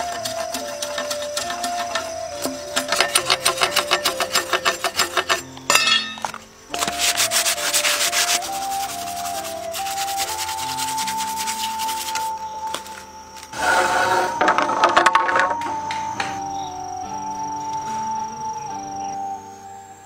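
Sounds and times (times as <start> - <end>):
sandpaper rubbing bamboo: 0.0 - 5.6, 6.2 - 14.8
blade scraping bamboo: 0.0 - 12.4, 13.5 - 15.6.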